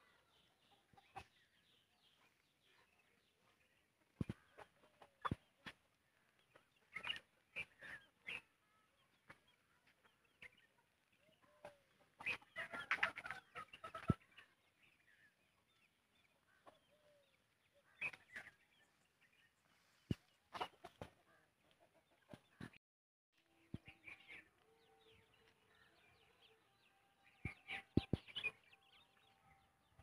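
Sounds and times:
chickens clucking: 0.0s - 14.6s, 16.3s - 18.9s, 20.0s - 22.8s, 27.4s - 29.3s.

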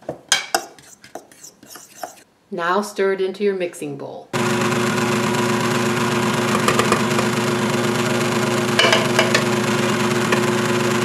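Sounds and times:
stand mixer motor running: 4.4s - 11.0s.

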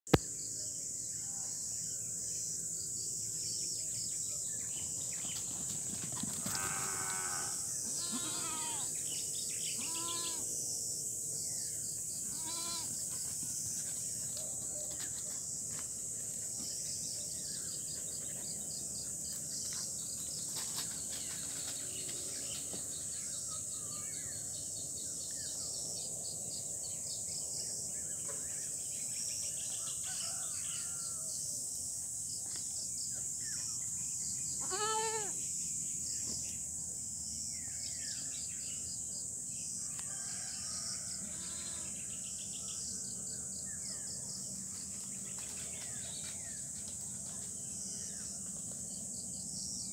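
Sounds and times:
high-pitched insect buzz: 6.4s - 13.6s, 33.4s - 38.6s, 40.2s - 42.1s
goat bleat: 6.6s - 8.9s, 9.8s - 10.5s, 12.3s - 12.9s, 34.6s - 35.4s, 41.2s - 41.9s.

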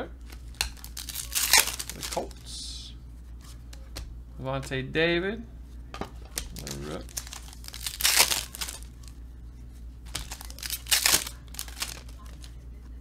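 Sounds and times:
foil wrapper crinkling and tearing: 0.5s - 2.4s, 6.3s - 9.0s, 10.1s - 12.5s.

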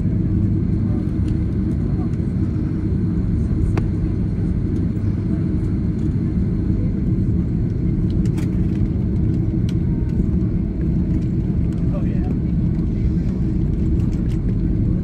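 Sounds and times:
jet engines low rumble: 0.0s - 15.0s.

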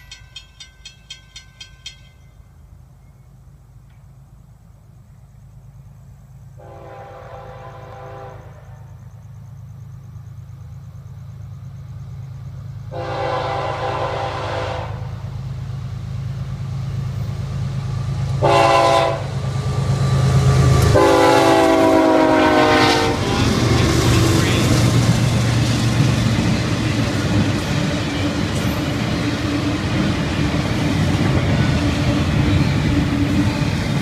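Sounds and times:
diesel engines rumbling: 2.6s - 34.0s
train horn blasts: 6.6s - 9.0s, 12.9s - 15.2s, 18.4s - 19.4s, 20.8s - 24.7s.

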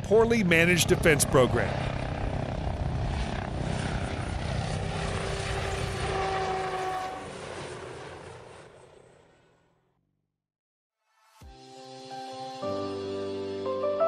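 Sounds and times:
helicopter rotor chopping: 0.0s - 9.8s.

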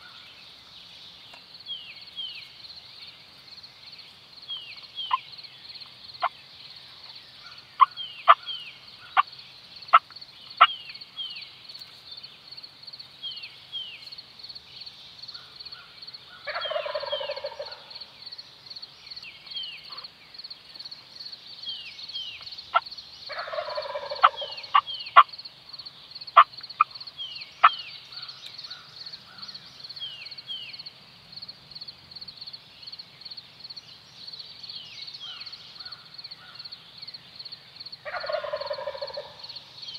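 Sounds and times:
turkey gobbling: 16.5s - 17.8s, 22.7s - 25.3s, 38.0s - 39.4s.

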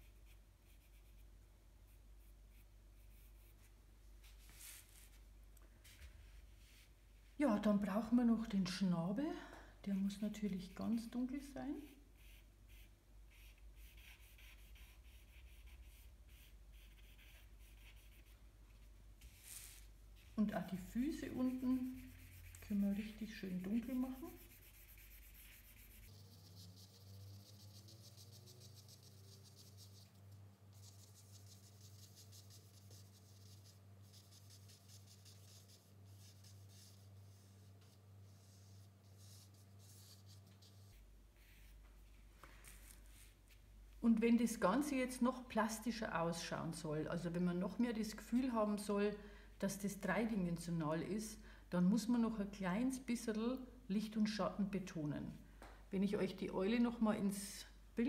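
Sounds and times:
charcoal scratching on paper: 0.0s - 1.3s, 11.8s - 18.4s, 19.2s - 41.7s
low steady hum: 0.0s - 58.0s.

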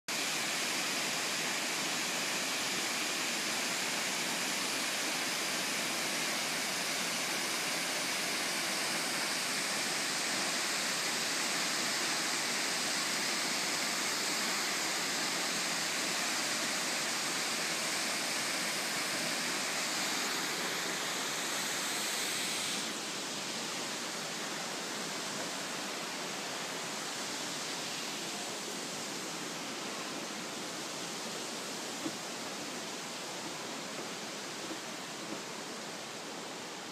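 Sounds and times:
waterfall rushing: 0.1s - 36.7s.

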